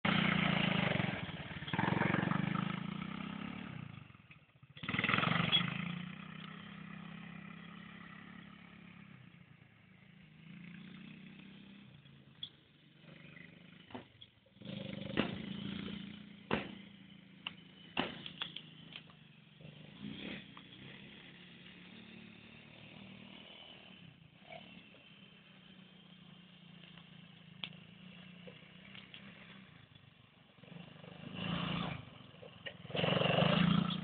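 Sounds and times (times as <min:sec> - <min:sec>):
quad bike engine revving: 0:00.0 - 0:34.0
sharp knocks: 0:16.5 - 0:16.8.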